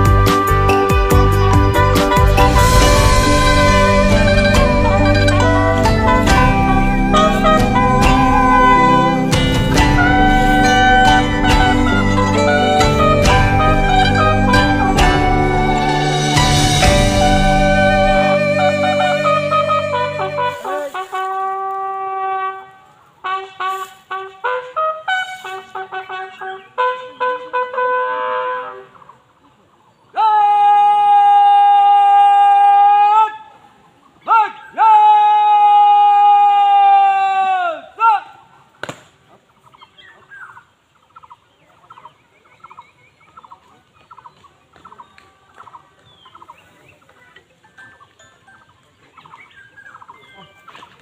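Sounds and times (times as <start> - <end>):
bugle call: 0.0 - 22.6.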